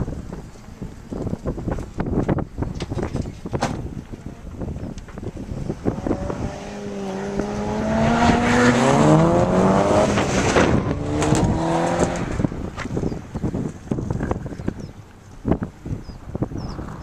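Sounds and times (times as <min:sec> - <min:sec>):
sports car engine revving: 0:05.5 - 0:13.1.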